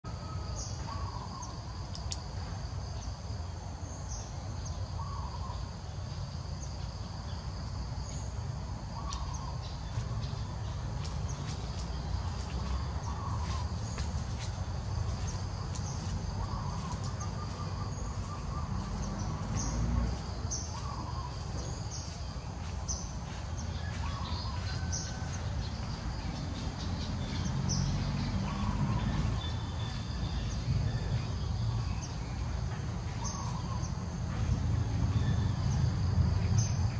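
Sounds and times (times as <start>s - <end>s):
birds chirping: 0.1s - 36.9s
bird calling: 0.2s - 1.6s, 4.7s - 5.7s, 8.9s - 11.5s, 12.6s - 14.6s, 15.2s - 25.3s.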